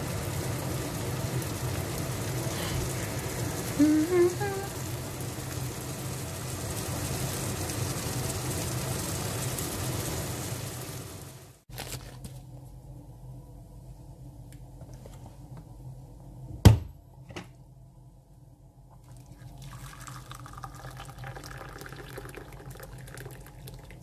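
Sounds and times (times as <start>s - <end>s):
low steady hum: 0.0s - 9.5s, 11.7s - 24.0s
omelette sizzling in a frying pan: 0.0s - 12.0s, 19.0s - 24.0s.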